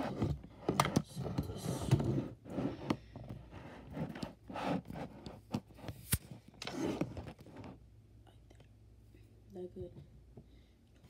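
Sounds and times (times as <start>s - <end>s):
handling noise rubbing and scraping: 0.0s - 7.8s.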